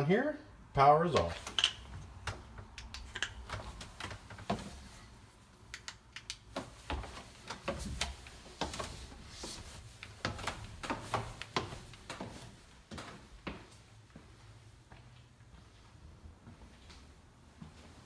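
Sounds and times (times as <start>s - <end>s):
footsteps on wooden stairs: 1.1s - 5.0s, 6.5s - 14.3s.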